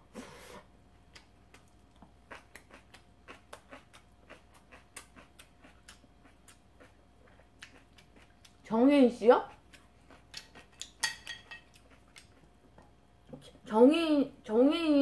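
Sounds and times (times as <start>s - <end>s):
crunchy chewing: 1.1s - 8.6s, 11.6s - 12.8s.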